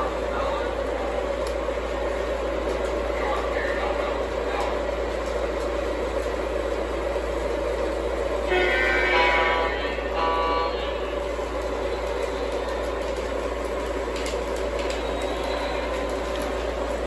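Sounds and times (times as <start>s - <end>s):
model trains rolling on track: 0.0s - 17.0s
model train horn blasts: 8.4s - 12.1s.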